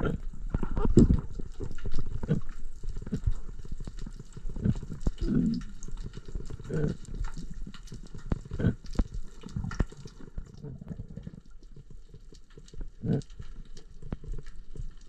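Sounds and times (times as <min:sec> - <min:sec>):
low bubbling gurgles: 0:00.0 - 0:15.0
underwater crackle of clicks: 0:00.0 - 0:15.0.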